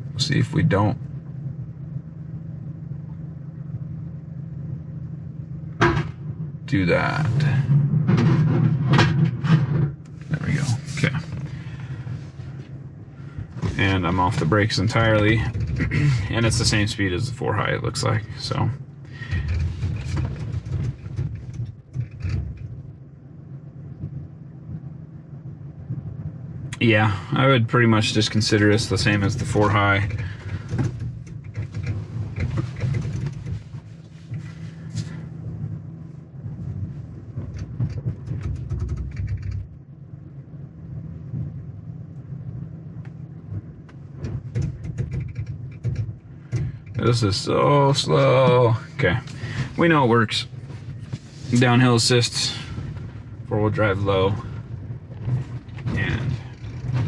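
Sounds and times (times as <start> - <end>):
truck engine rumble in cab: 0.0 - 57.0
gravel crackles: 25.8 - 39.8, 42.9 - 57.0
crackling and clicking: 28.8 - 34.4, 37.3 - 39.8, 43.0 - 48.2.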